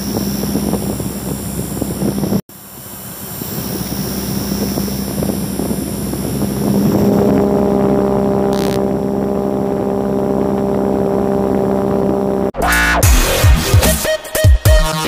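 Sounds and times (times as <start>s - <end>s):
small motor spinning propeller: 0.0s - 12.5s
sustained droning tones: 0.0s - 13.0s.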